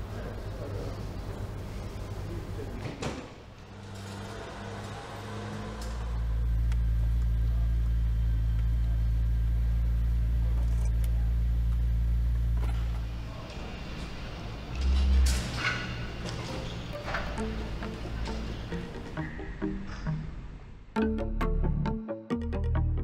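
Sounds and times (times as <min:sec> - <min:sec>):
truck engine humming: 0:03.4 - 0:21.1.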